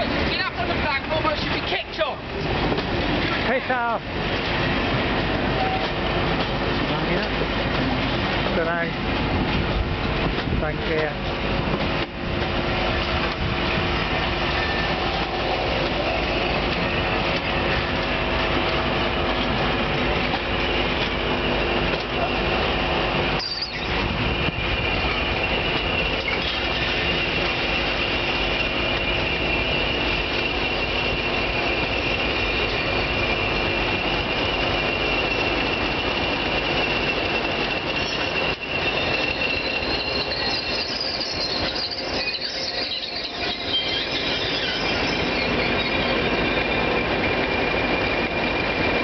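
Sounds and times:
diesel locomotives: 0:00.0 - 0:49.0
train clattering on rails: 0:00.0 - 0:49.0
train wheels squealing: 0:04.6 - 0:08.9, 0:12.4 - 0:49.0.

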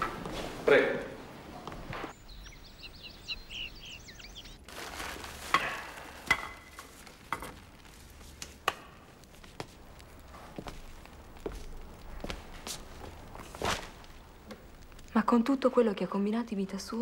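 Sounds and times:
birds chirping: 0:00.0 - 0:05.3.

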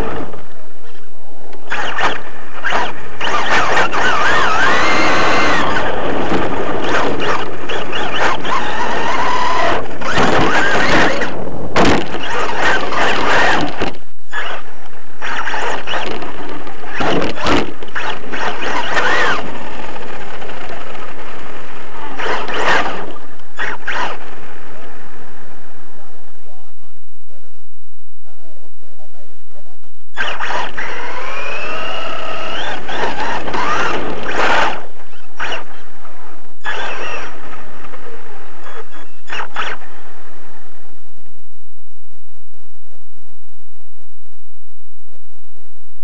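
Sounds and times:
toy car motor whine: 0:01.6 - 0:11.4, 0:12.1 - 0:21.2, 0:22.0 - 0:24.3, 0:30.1 - 0:35.8, 0:36.6 - 0:37.7, 0:38.6 - 0:40.0.

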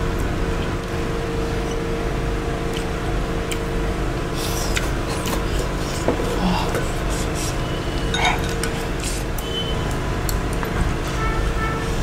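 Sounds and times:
low background hum: 0:00.0 - 0:12.0
soft eating sounds: 0:00.2 - 0:10.5.

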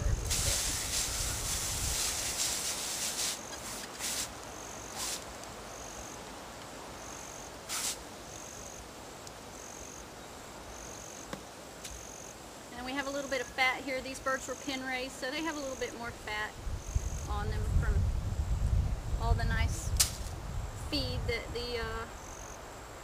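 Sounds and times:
rustling: 0:00.0 - 0:06.6
insect chirping: 0:00.0 - 0:23.0
short bursts of noise: 0:00.2 - 0:05.3, 0:07.6 - 0:08.0.

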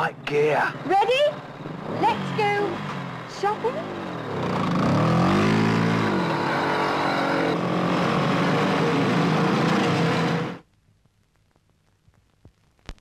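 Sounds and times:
motorcycle engines revving: 0:00.0 - 0:10.6.

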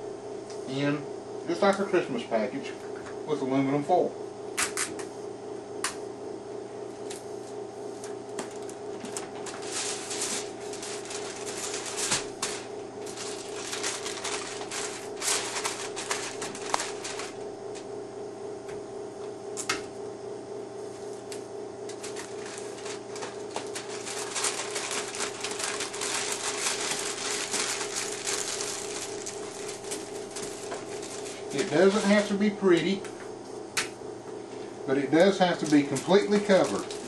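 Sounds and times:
steady hum: 0:00.0 - 0:37.0
aluminum foil crinkling: 0:08.5 - 0:17.4, 0:21.9 - 0:32.4, 0:35.4 - 0:37.0.

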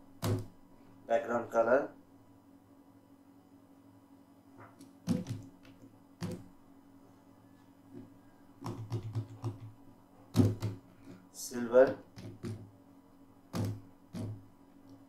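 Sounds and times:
computer keyboard typing: 0:04.8 - 0:06.4, 0:08.6 - 0:09.8.

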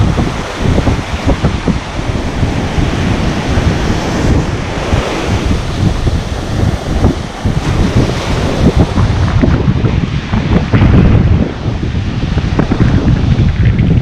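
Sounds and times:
waves breaking on beach: 0:00.0 - 0:14.0
wind buffeting microphone: 0:00.0 - 0:14.0.

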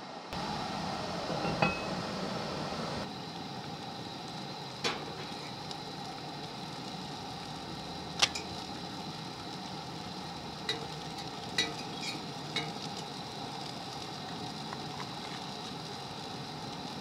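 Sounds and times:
food sizzling in a pan: 0:00.3 - 0:17.0
utensil clinking: 0:11.6 - 0:13.0.

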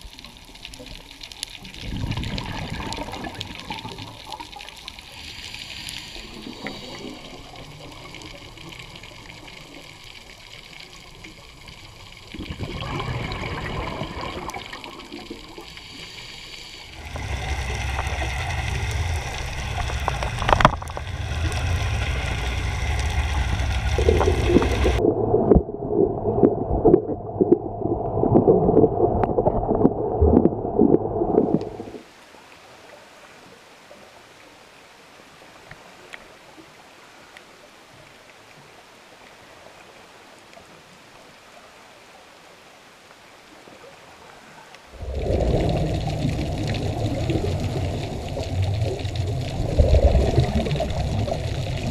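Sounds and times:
muffled underwater noise: 0:01.8 - 0:34.1.

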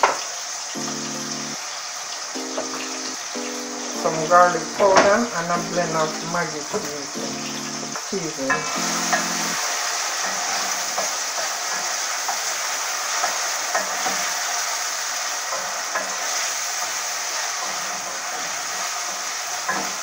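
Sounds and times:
vegetables sizzling in a pot: 0:00.0 - 0:20.0.

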